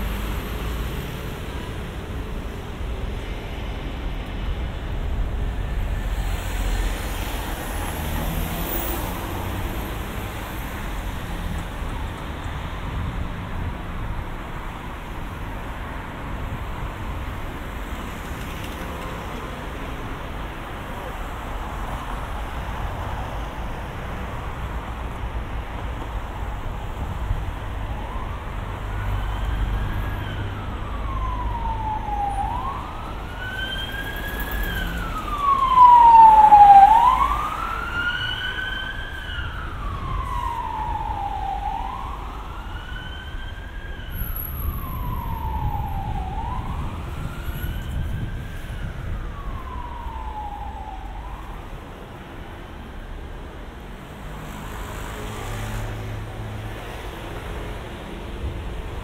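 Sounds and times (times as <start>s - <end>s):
traffic rumble: 0.0s - 59.0s
emergency siren wailing: 27.4s - 52.2s.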